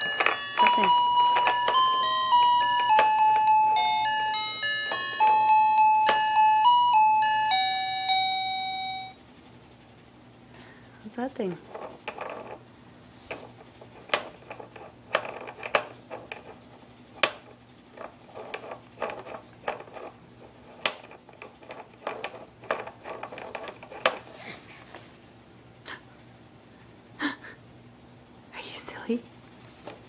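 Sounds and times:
plastic toys clicking and rattling: 13.8 - 16.6, 17.2 - 24.3.

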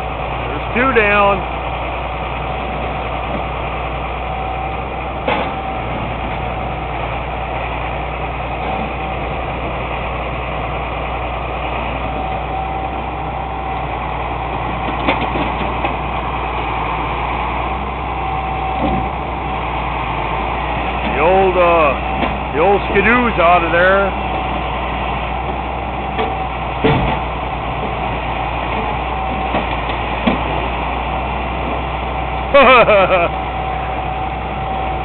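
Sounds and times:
truck engine idling: 0.0 - 35.0.

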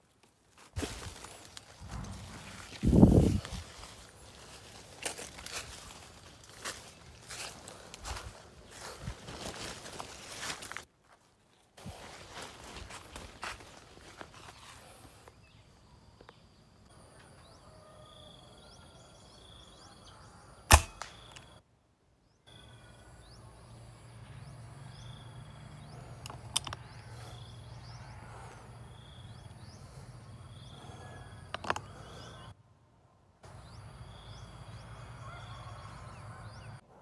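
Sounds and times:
air rifle shot: 20.7 - 21.3.

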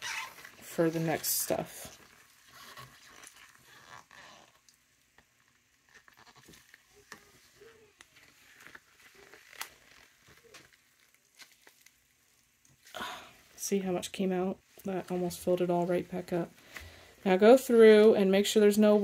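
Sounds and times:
gloved hands wringing wet fabric: 6.6 - 17.4.

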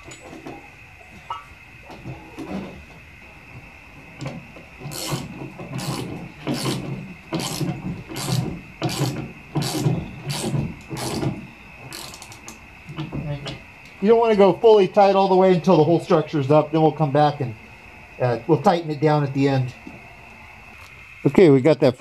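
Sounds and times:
ratchet wrench turning a nut: 4.8 - 12.6.

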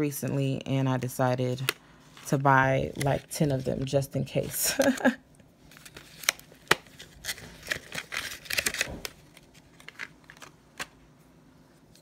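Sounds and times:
card packaging rustling: 1.6 - 11.0.

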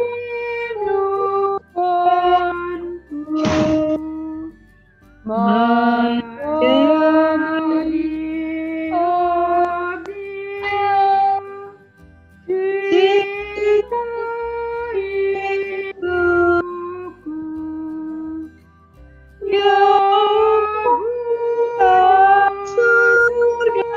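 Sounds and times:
woman singing a slow hymn: 0.0 - 4.5, 5.2 - 11.8, 12.5 - 18.5, 19.4 - 23.9.

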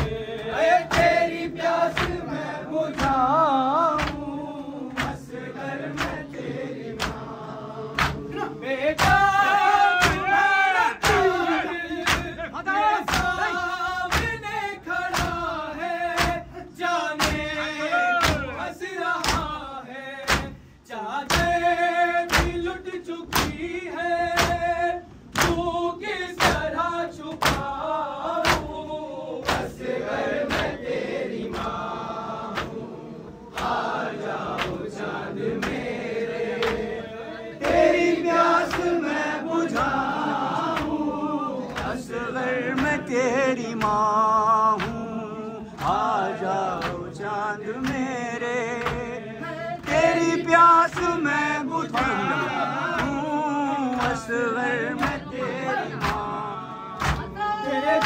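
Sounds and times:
group chanting in chorus: 0.0 - 58.0
hands beating on chests: 3.9 - 4.3, 9.0 - 15.5, 16.2 - 16.5, 17.2 - 17.6, 18.2 - 18.6, 19.2 - 19.6, 22.3 - 22.7, 23.3 - 23.6, 25.3 - 25.8, 27.3 - 27.8.

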